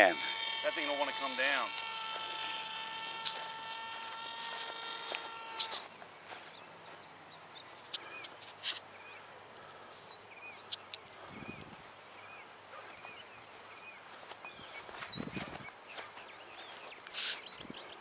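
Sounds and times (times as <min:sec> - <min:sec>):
electric motor whine: 0:00.0 - 0:07.6
sharp clicks: 0:00.1 - 0:05.9
bird whistled chirps: 0:10.1 - 0:11.6, 0:12.3 - 0:13.2, 0:17.2 - 0:18.0.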